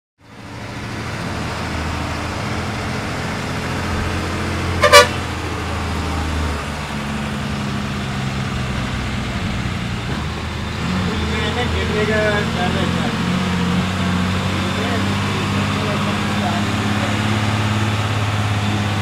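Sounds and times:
vehicle engine running: 0:00.2 - 0:19.0
car horn honks: 0:04.8 - 0:05.2.

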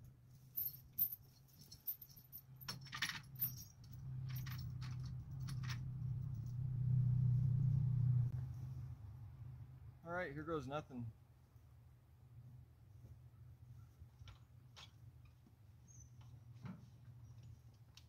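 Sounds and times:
light metallic clinks and rattles: 0:00.4 - 0:06.6.

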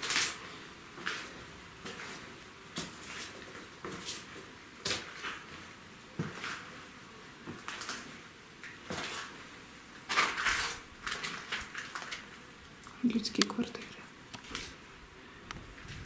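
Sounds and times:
footsteps crunching on rubble: 0:00.0 - 0:06.7, 0:07.4 - 0:09.4, 0:10.0 - 0:12.5.

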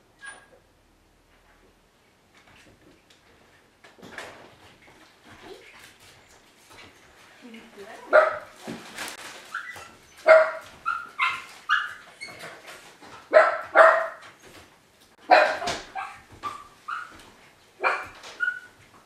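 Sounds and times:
small dog barking and yipping: 0:09.5 - 0:12.1, 0:13.3 - 0:14.2, 0:15.3 - 0:17.2, 0:17.8 - 0:18.7.

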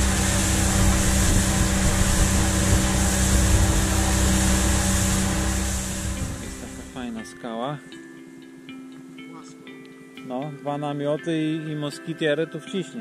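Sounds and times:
rushing wake water: 0:00.0 - 0:07.1
outboard motor droning: 0:00.0 - 0:07.2
wind: 0:00.0 - 0:07.2.

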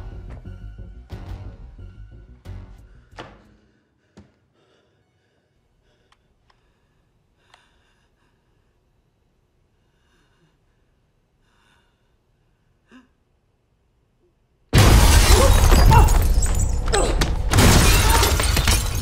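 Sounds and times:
glass shattering crash: 0:14.8 - 0:19.0.

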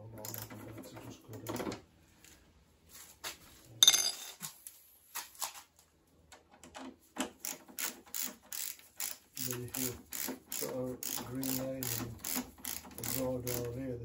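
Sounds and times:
ratcheting screwdriver clicking: 0:07.4 - 0:13.6.

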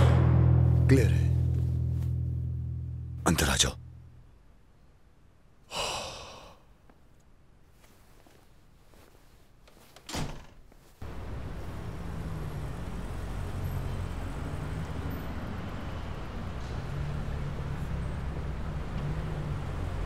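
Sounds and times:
door banging shut: 0:10.1 - 0:10.6
car engine running: 0:11.0 - 0:20.0.

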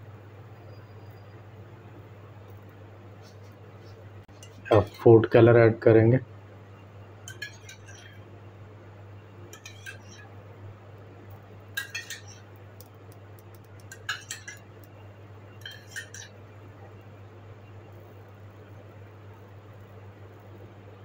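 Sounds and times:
steady low hum: 0:00.0 - 0:21.0
metal spoon clinking steel bowl: 0:07.3 - 0:08.2, 0:09.5 - 0:10.3, 0:11.8 - 0:14.9, 0:15.6 - 0:16.4.

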